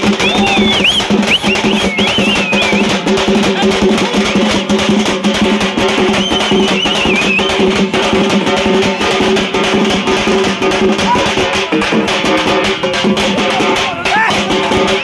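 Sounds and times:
crowd voices: 0.0s - 15.0s
fast drumming on stick drums: 0.0s - 15.0s.

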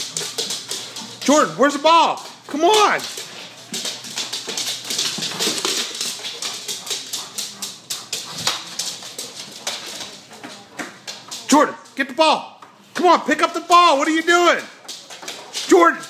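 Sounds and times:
dog claws scrabbling on wood: 2.2s - 11.5s
dog mouthing ball: 2.2s - 11.5s.

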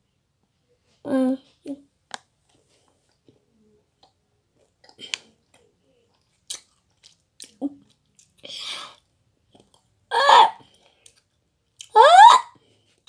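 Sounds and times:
child chewing: 2.1s - 10.0s, 10.6s - 11.9s
wet mouth clicks and smacks: 6.2s - 8.4s.

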